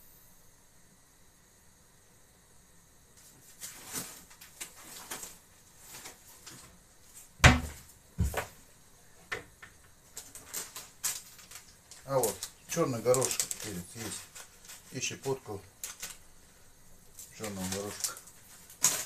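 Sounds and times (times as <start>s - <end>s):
cupboard door knock: 7.4s - 8.4s
things knocking on shelves: 7.4s - 8.6s.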